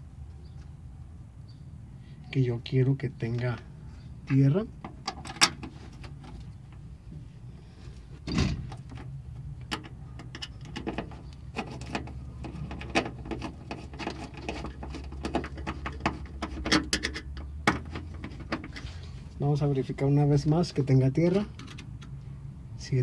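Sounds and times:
wire and metal clicks and scrapes: 8.7 - 19.4.

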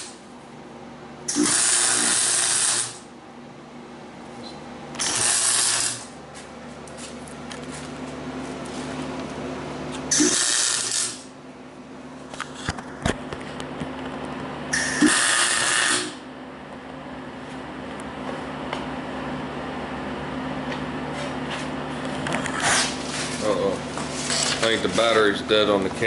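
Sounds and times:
steady low hum: 0.0 - 26.0
welder arc crackling: 1.3 - 3.0, 5.0 - 6.2, 10.1 - 11.3, 14.8 - 16.2.

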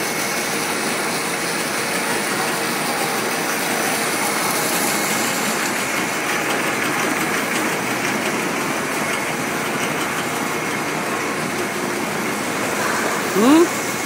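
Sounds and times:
production line machinery running: 0.0 - 14.0.

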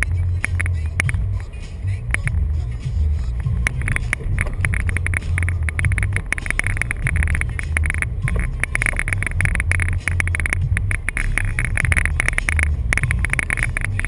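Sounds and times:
truck engine running: 0.0 - 14.0
rattles and knocks over bumps: 3.3 - 14.0.

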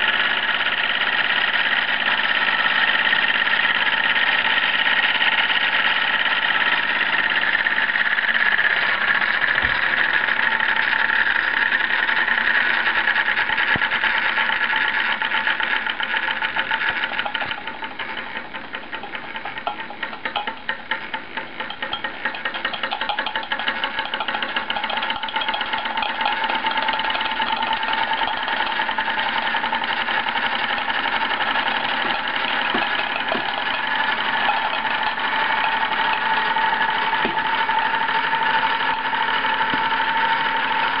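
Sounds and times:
high steady whine: 0.0 - 20.8
toy steam engine chuffing: 0.0 - 41.0.

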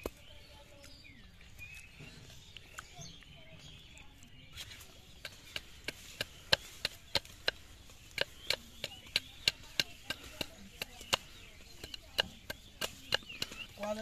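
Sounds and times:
machete chopping bamboo stick: 4.6 - 14.0.

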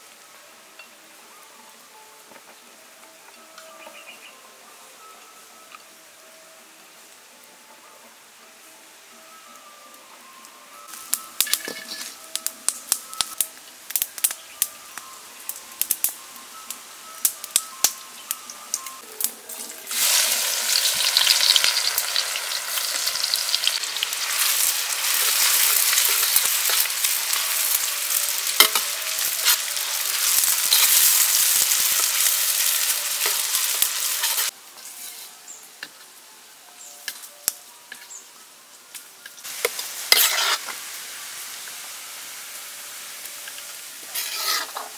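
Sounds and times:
onions sizzling in hot oil: 10.8 - 18.8, 19.5 - 36.0, 39.0 - 44.9
oil popping and crackling: 19.9 - 34.5.

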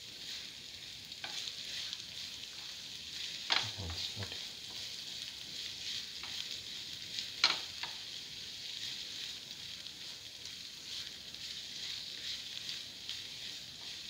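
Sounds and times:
shallots sizzling in hot oil: 0.0 - 14.0
spatula tapping and scraping pan: 1.1 - 4.9, 7.2 - 8.0.

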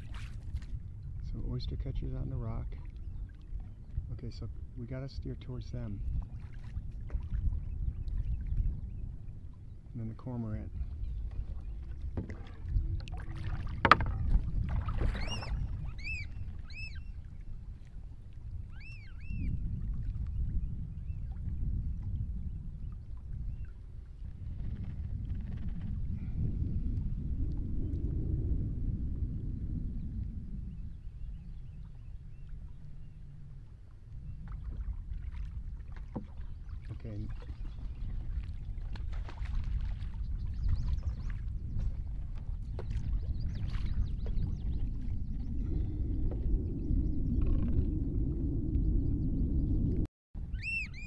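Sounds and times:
paddle splashes: 0.0 - 0.8, 6.0 - 8.8, 10.7 - 19.3, 31.8 - 46.5
low rumble of water and wind: 0.0 - 51.0
bird piping whistles: 15.2 - 17.2, 18.7 - 19.6, 50.5 - 51.0
steady low rumble: 26.0 - 31.0, 43.2 - 50.1.

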